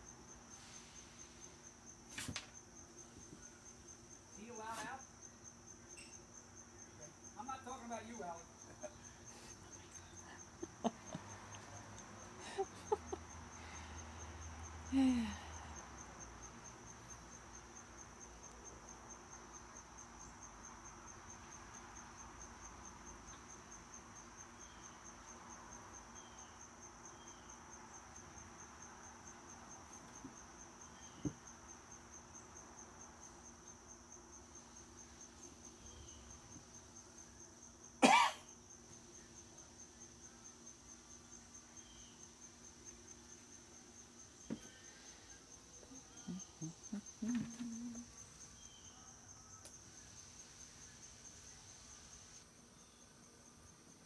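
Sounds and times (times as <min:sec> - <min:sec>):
insect pulsing trill: 0:44.3 - 0:53.1.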